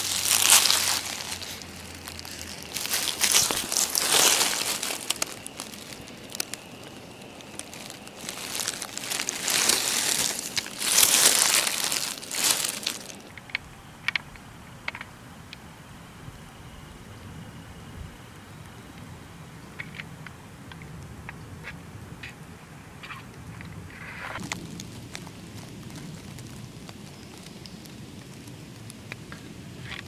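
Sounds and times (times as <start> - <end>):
dry leaves rustling and crackling: 0.0 - 13.4, 24.4 - 30.0
small ticks: 0.5 - 15.1, 24.4 - 30.0.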